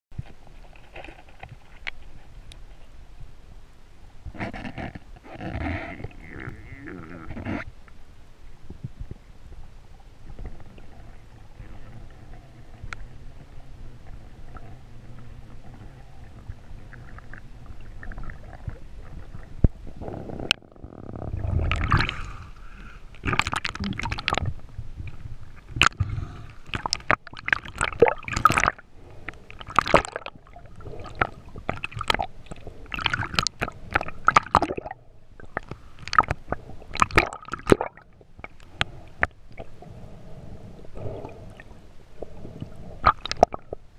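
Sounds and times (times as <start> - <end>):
underwater wash: 4.2 - 43.9
splashing and gurgling water: 10.2 - 20.0, 21.3 - 39.8, 41.1 - 43.9.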